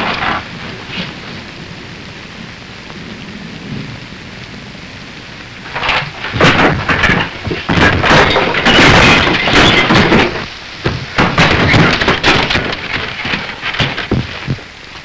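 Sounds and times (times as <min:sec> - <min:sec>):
storm rain: 0:00.0 - 0:15.0
crashes and bangs of breaking objects: 0:05.6 - 0:14.7.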